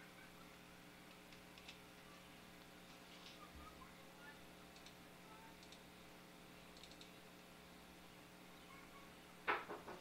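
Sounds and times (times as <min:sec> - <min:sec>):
faint steady hum: 0:00.0 - 0:10.0
faint clicks: 0:04.7 - 0:05.0, 0:05.6 - 0:05.9, 0:06.7 - 0:07.5.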